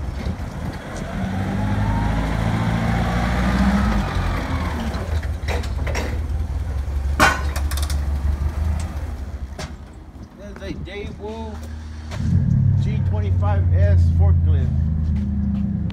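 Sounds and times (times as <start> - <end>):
forklift engine running: 0.0 - 10.4
whine rising and falling: 12.0 - 15.9.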